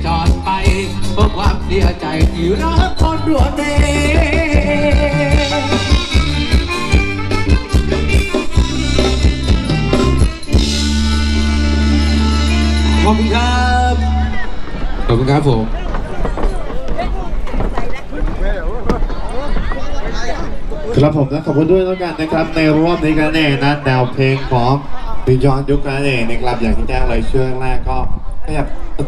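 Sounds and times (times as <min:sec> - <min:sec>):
live band music with singing: 0:00.0 - 0:18.1
quick drum beat: 0:00.2 - 0:11.0.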